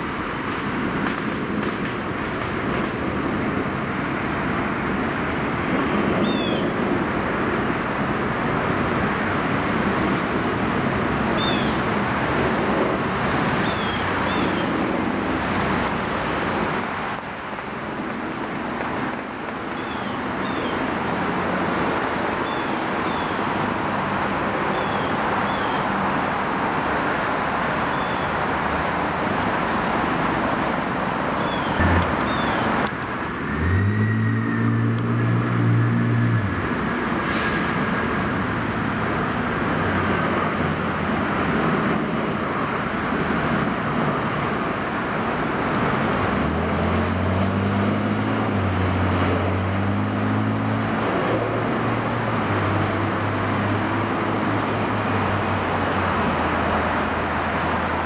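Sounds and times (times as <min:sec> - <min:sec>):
engine hum with gliding whine: 0:00.0 - 0:58.0
jet engines roaring: 0:00.0 - 0:58.0
road traffic: 0:00.0 - 0:58.0
small birds chirping: 0:31.4 - 0:32.7.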